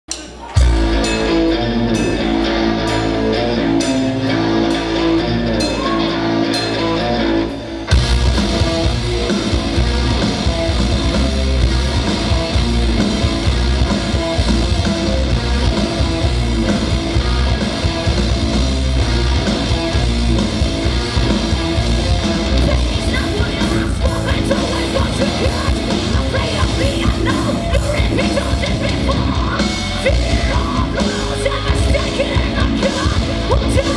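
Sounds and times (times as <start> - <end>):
drums: 0.0 - 33.9
bass guitar: 0.1 - 33.9
distorted guitars: 0.1 - 33.9
person singing: 22.2 - 33.9.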